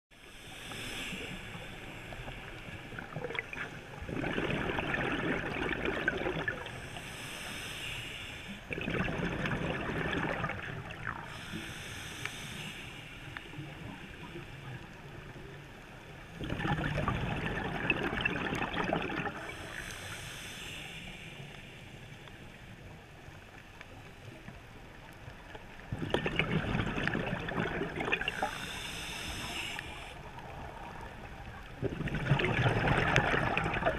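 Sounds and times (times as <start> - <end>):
regulator inhalation hiss: 0.2 - 3.2, 6.6 - 8.7, 11.2 - 14.7, 19.3 - 22.7, 28.2 - 30.3
bubbling diver exhalations: 3.0 - 6.7, 8.7 - 11.3, 16.4 - 19.8, 26.0 - 28.7, 31.8 - 33.9.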